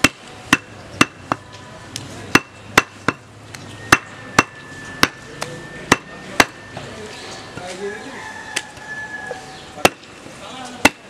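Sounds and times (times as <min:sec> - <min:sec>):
cleaver chopping meat on wood: 0:00.0 - 0:01.5, 0:02.3 - 0:03.3, 0:03.9 - 0:05.2, 0:05.9 - 0:06.6, 0:09.8 - 0:10.1.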